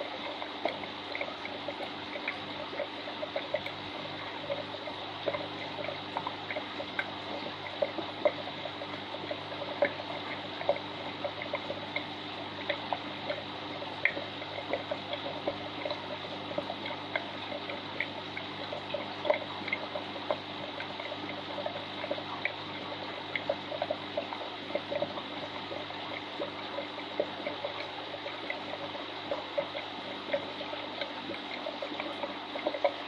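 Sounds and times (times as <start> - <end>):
small plinks and splashes: 0.0 - 33.0
steady low hum: 0.0 - 33.0
water trickling and dripping: 0.0 - 33.0.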